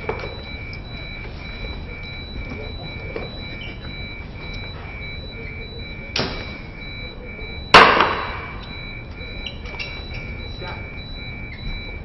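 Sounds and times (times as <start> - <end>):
elevator alarm beeping: 0.0 - 12.0.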